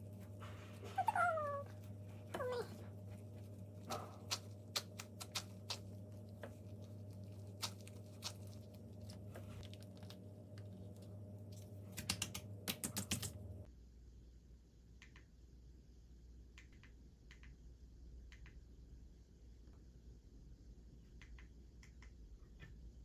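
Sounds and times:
plastic gloves crinkling: 0.0 - 11.9
steady low hum: 0.0 - 23.0.

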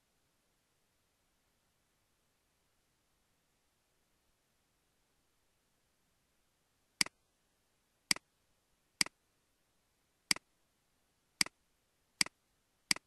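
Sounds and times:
computer mouse button clicking: 12.2 - 13.0.

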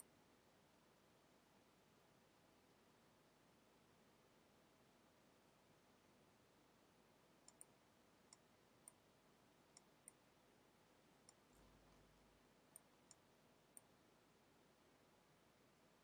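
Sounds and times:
faint computer mouse clicks: 7.4 - 9.0, 12.7 - 13.9.

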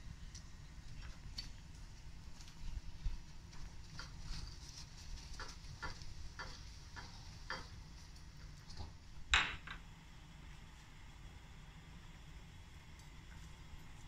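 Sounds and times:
light taps and clicks: 3.5 - 8.9.

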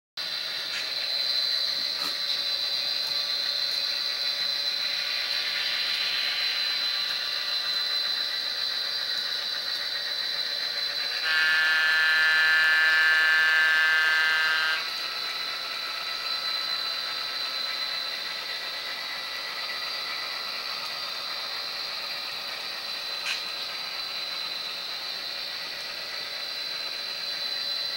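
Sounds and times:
model locomotive engine sound: 0.2 - 27.9
locomotive horn chord: 11.2 - 14.8.

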